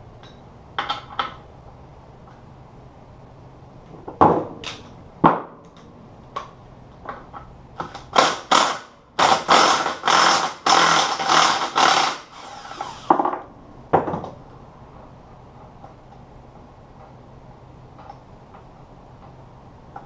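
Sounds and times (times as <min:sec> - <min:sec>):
power tool bursts: 0:08.1 - 0:13.2.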